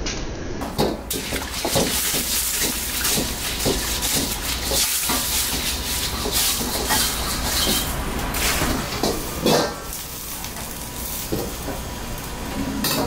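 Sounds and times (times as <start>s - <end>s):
brush scrubbing wok: 1.1s - 9.2s.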